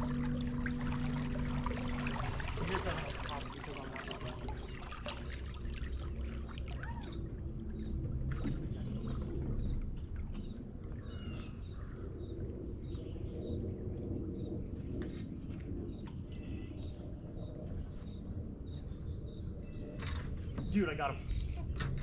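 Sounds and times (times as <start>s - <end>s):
water lapping against boat hull: 0.0s - 17.0s
low rumble: 0.0s - 22.0s.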